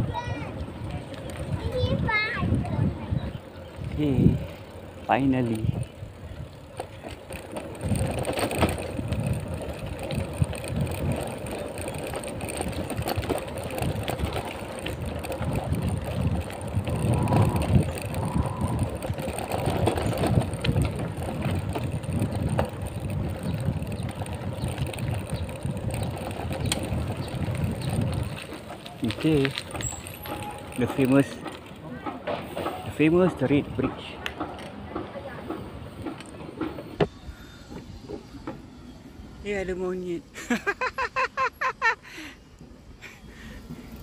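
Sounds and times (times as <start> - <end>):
wind buffeting microphone: 0.0 - 38.4
tyres rumbling on dirt: 0.0 - 38.8
bicycle knocking over bump: 6.7 - 34.0.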